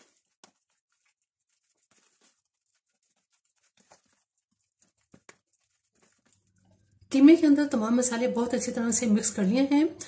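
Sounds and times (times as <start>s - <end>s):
spoon stirring in plastic tub: 0.0s - 7.0s.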